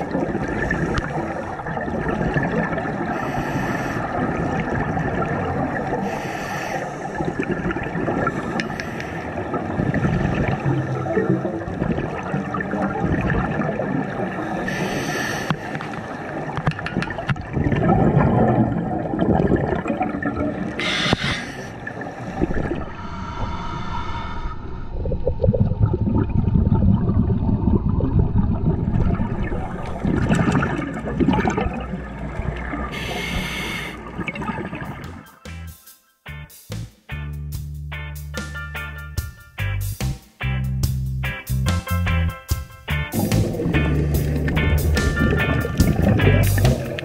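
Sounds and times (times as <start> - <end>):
bubbling gurgling exhalations: 0.0 - 8.8, 9.4 - 35.2, 43.1 - 47.0
regulator hissing inhalations: 3.1 - 4.2, 6.0 - 7.2, 8.3 - 9.4, 14.6 - 16.0, 20.8 - 24.8, 32.9 - 34.1.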